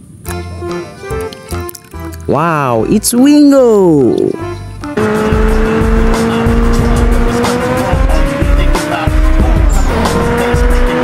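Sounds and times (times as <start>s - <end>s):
engine or tyre whine: 4.8s - 11.0s.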